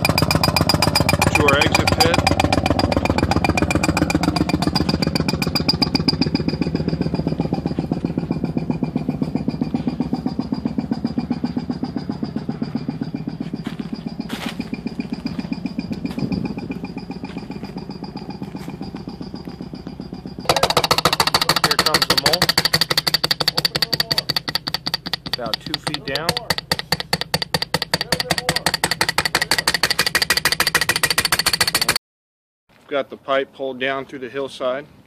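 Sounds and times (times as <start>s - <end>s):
pneumatic boring rig pulsing: 0.0s - 32.0s
sharp clicks: 20.5s - 32.0s.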